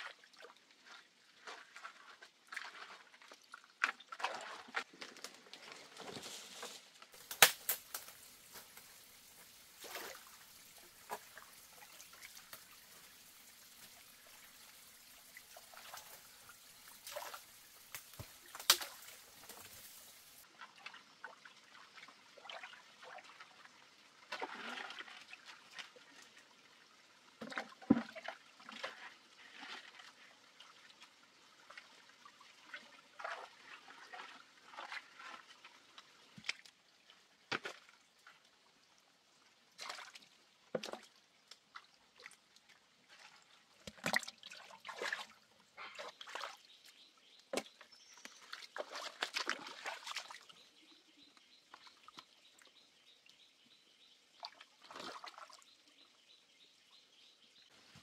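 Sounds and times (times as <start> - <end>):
water splashing and sloshing: 0.0 - 56.0
branches rustling and snapping: 4.9 - 9.0, 17.0 - 20.4.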